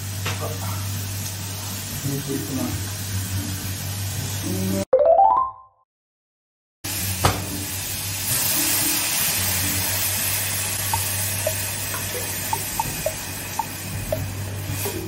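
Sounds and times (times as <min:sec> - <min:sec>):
water hissing in hot pan: 0:06.9 - 0:15.0
simmering bubbling pops: 0:10.9 - 0:14.3.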